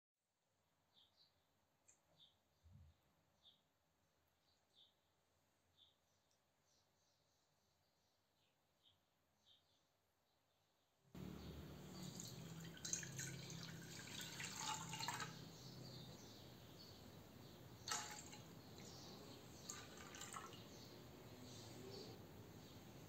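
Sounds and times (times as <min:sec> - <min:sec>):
milk pouring into saucepan: 0:11.2 - 0:15.5, 0:17.8 - 0:18.9, 0:19.6 - 0:20.7.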